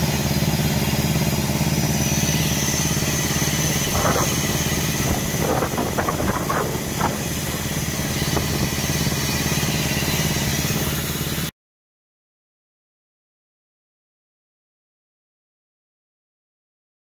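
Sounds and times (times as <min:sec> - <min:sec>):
crane engine exhaust beat: 0:00.0 - 0:11.5.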